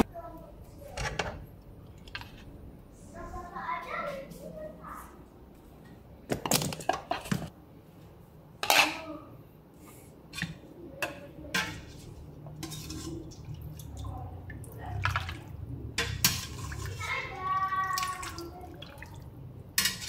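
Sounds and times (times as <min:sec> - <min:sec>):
dishes and cutlery clattering: 0:08.6 - 0:09.1, 0:10.4 - 0:13.4, 0:19.8 - 0:20.0.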